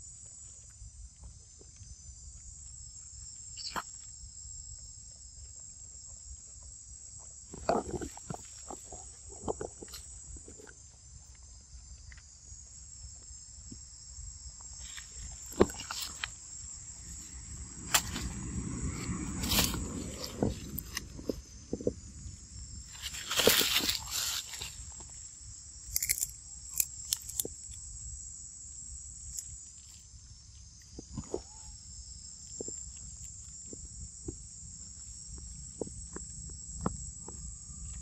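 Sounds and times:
rustling: 0:22.8 - 0:25.2.

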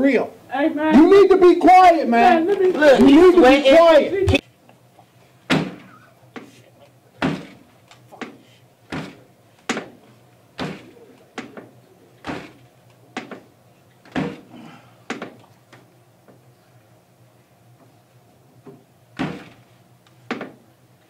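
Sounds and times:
knocks on a door: 0:05.5 - 0:05.8.

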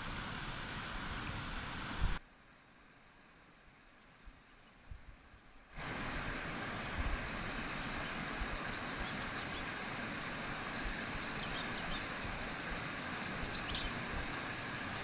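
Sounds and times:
wind rumbling on microphone: 0:04.2 - 0:15.0
fast-flowing river rushing: 0:05.8 - 0:15.0.

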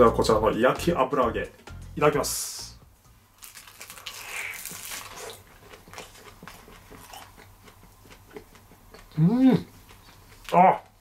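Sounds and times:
crisp crunch of biting: 0:03.4 - 0:07.5
crackly chewing: 0:03.4 - 0:11.0.

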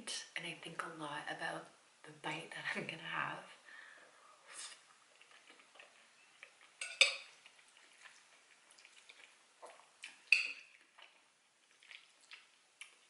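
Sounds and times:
spoon scraping ceramic bowl: 0:06.2 - 0:07.3.

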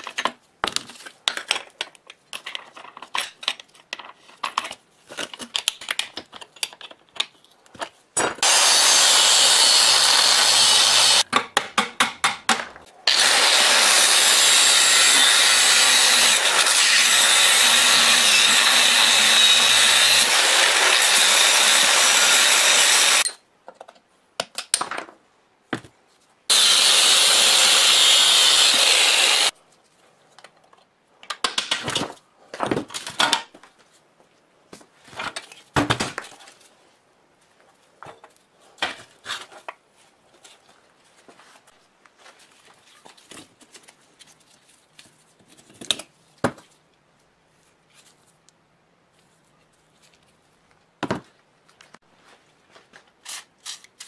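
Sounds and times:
angle grinder cutting steel: 0:08.4 - 0:11.2, 0:13.1 - 0:23.3, 0:26.5 - 0:29.5.

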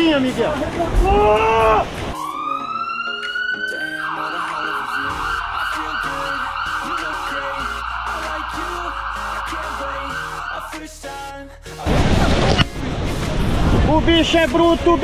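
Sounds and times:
background music melody: 0:02.0 - 0:11.9
siren-like wavering tone: 0:02.2 - 0:10.7.

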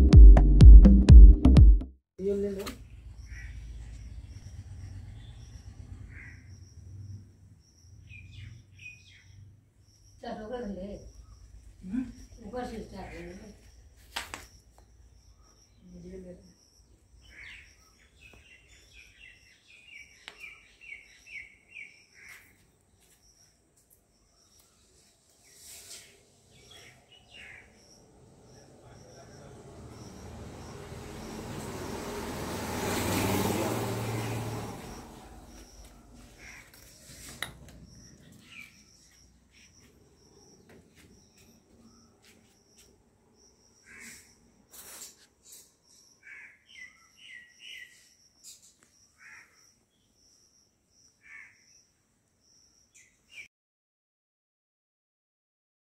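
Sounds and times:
bird chirping: 0:02.2 - 0:53.5.

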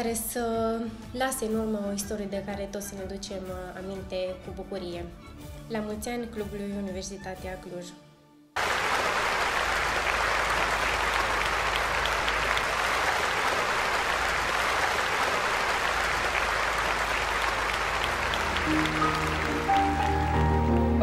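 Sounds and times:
crowd applause: 0:08.6 - 0:21.0.

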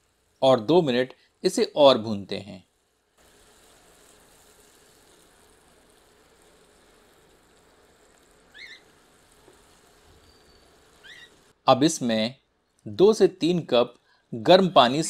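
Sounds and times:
masala sizzling in oil: 0:00.0 - 0:12.1
spatula stirring: 0:02.7 - 0:11.6
rising squeak: 0:08.5 - 0:08.9, 0:10.1 - 0:11.4.

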